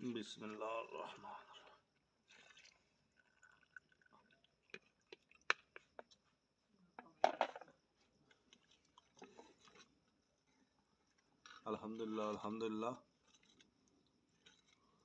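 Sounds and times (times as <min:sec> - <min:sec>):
liquid pouring into a pot: 0:02.2 - 0:05.9.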